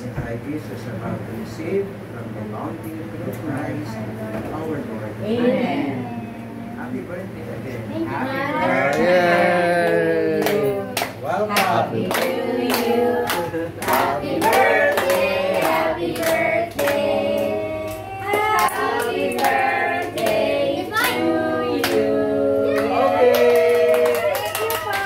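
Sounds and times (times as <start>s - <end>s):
group of people singing: 8.6s - 23.7s
hand clapping: 9.8s - 17.0s, 22.7s - 25.0s.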